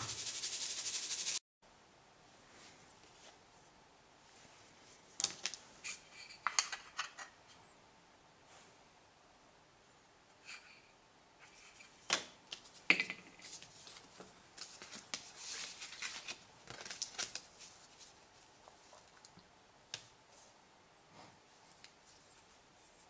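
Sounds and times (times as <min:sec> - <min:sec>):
paper and plastic rustling: 0:12.5 - 0:19.3.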